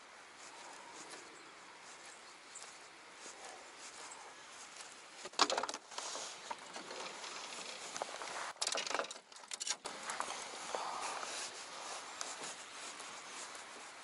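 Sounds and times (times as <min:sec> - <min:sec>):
light outdoor hiss: 0:00.0 - 0:14.0
fishing gear clattering: 0:05.2 - 0:10.0.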